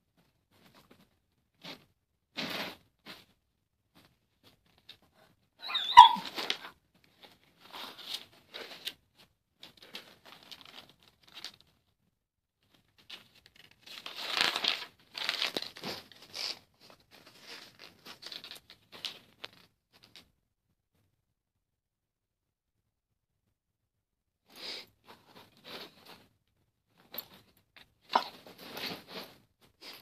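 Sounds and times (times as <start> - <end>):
high-pitched squeak: 5.6 - 6.4.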